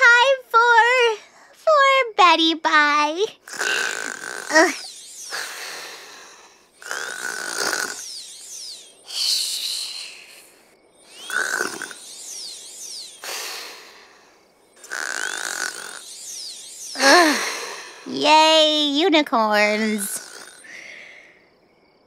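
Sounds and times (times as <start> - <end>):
cartoon snoring: 3.4 - 8.1, 9.1 - 12.1, 13.2 - 14.2, 14.8 - 16.0, 17.0 - 18.1, 19.8 - 20.8
whistling exhale: 3.4 - 18.2, 20.1 - 21.4.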